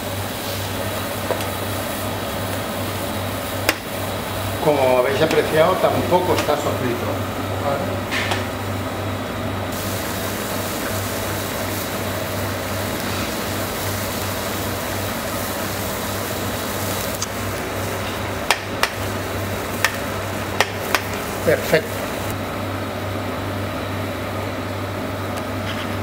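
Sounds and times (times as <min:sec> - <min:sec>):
broth bubbling in a pan: 0:09.7 - 0:22.4.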